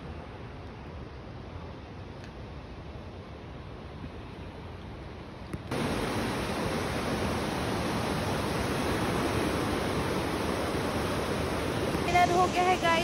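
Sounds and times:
river rushing: 0:05.7 - 0:13.0.

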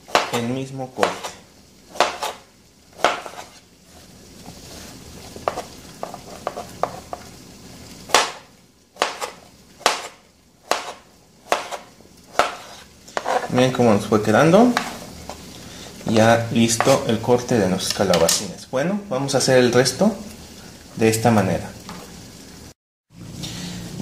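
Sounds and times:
knife slicing vegetable: 0:00.0 - 0:03.6, 0:09.0 - 0:13.6.

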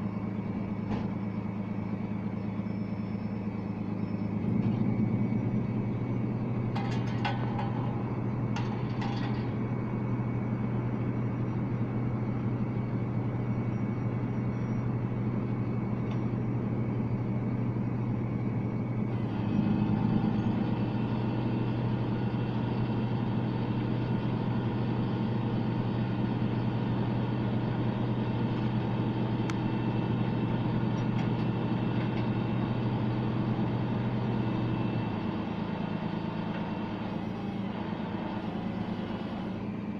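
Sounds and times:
truck engine humming: 0:00.0 - 0:39.9
winch whine: 0:00.0 - 0:39.9
light metallic clanks: 0:06.7 - 0:09.6.

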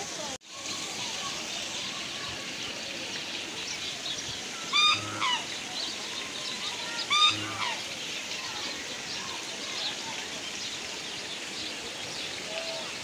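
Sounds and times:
waterfowl honking: 0:04.7 - 0:05.5, 0:07.1 - 0:07.8.

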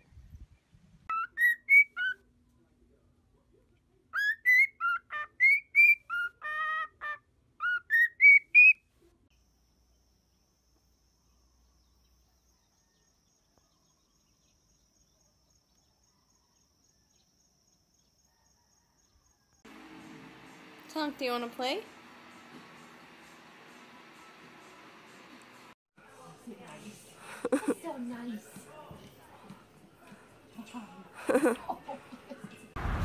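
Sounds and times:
cockatiel whistling: 0:01.1 - 0:02.2, 0:04.2 - 0:06.9, 0:07.6 - 0:08.8.

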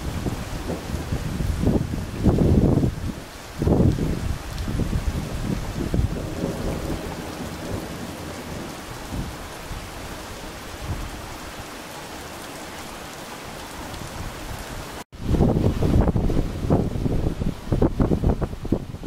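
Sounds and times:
thunder rumbling: 0:00.0 - 0:11.3
heavy rain pouring: 0:00.0 - 0:19.0.

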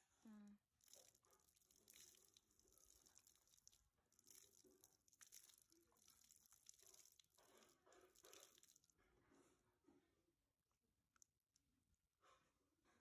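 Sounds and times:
water splashing on concrete: 0:00.8 - 0:08.9.

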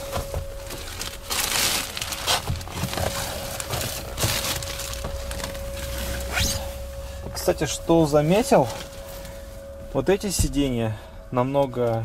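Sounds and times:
plastic film crinkling and rustling: 0:00.0 - 0:10.0
faint steady tone: 0:02.9 - 0:12.0.

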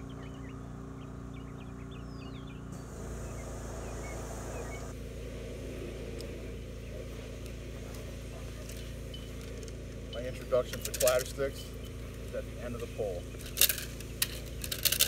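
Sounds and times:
engine humming: 0:00.0 - 0:15.0
rough rushing noise: 0:02.7 - 0:08.6.

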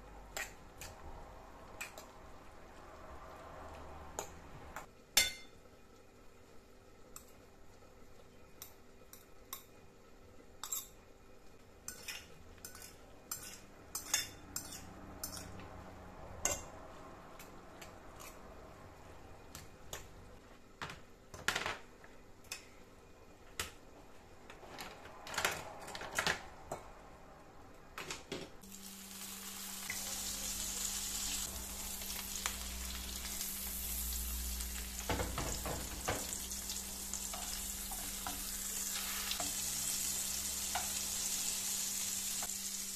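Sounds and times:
fritter sizzling in oil: 0:11.6 - 0:15.6, 0:28.6 - 0:42.9.

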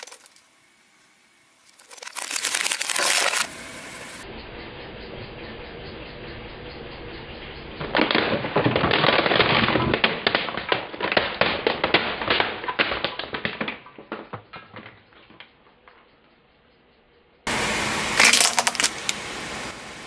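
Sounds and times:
plastic cracking under tyre: 0:00.0 - 0:00.4, 0:01.7 - 0:03.6, 0:07.8 - 0:16.0, 0:18.2 - 0:19.2.

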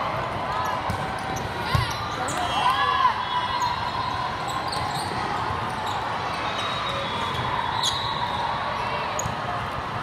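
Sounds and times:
balls bouncing: 0:00.2 - 0:02.4
sneaker squeaks: 0:00.6 - 0:02.7, 0:03.5 - 0:08.4, 0:09.1 - 0:09.4.

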